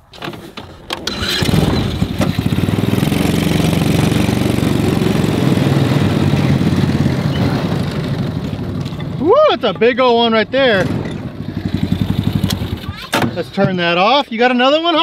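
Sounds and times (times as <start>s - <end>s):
small engine starting and idling: 1.0s - 9.3s, 10.6s - 13.1s.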